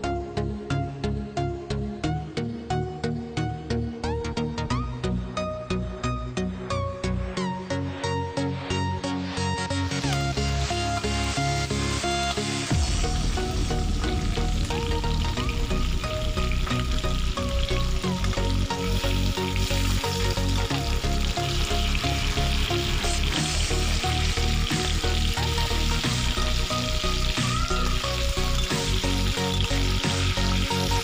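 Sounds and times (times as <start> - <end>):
fish sizzling in hot oil: 9.8 - 31.0.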